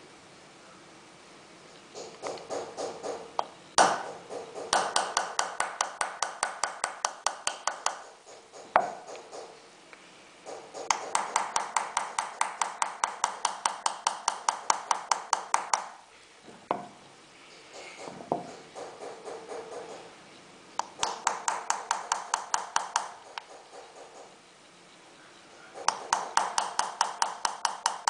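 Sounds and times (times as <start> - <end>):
hammer tapping metal chisel: 2.0 - 9.6, 10.5 - 16.0, 20.8 - 24.3, 25.8 - 28.0.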